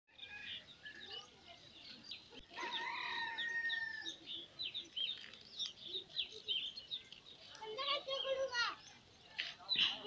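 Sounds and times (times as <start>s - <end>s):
small birds chirping: 0.1s - 10.0s
rooster crowing: 2.6s - 4.2s.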